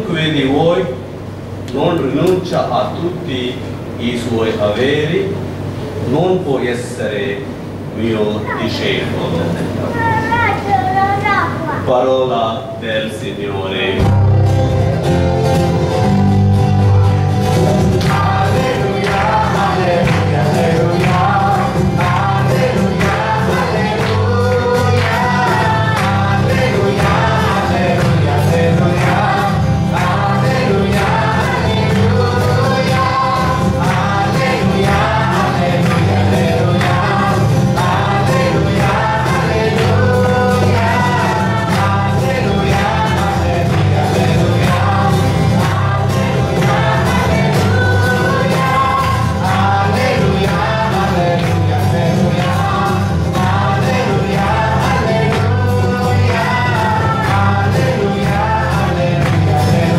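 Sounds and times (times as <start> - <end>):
group singing a hymn: 13.9 - 59.9
strummed guitar: 13.9 - 59.9.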